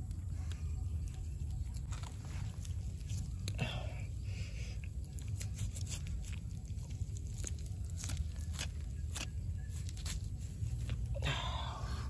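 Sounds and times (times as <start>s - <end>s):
knife cutting through crackling skin: 7.2s - 11.0s.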